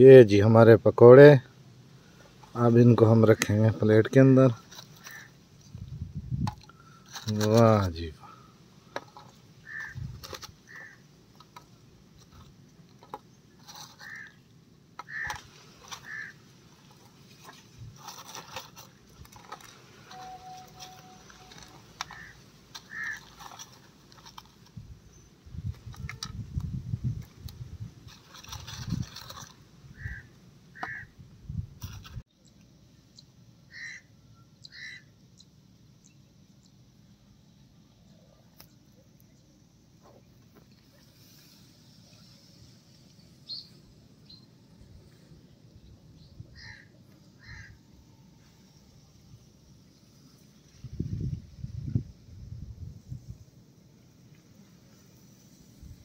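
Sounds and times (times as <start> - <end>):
faint outdoor background noise: 0.0 - 56.0
bird calling: 4.8 - 5.4, 8.9 - 11.1, 13.7 - 14.4, 15.0 - 16.4, 19.4 - 24.4, 29.3 - 31.1, 33.7 - 36.7, 43.4 - 44.5, 46.2 - 48.3.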